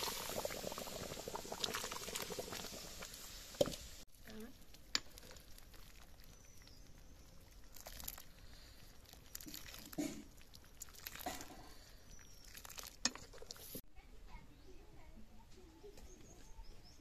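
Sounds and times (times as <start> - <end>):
curry simmering: 0.0 - 13.8
ladle splashing curry: 4.7 - 13.8.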